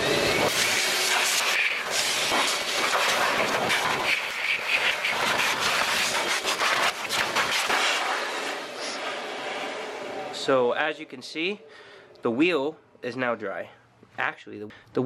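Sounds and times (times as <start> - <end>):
air blower rushing with whine: 0.0 - 11.7.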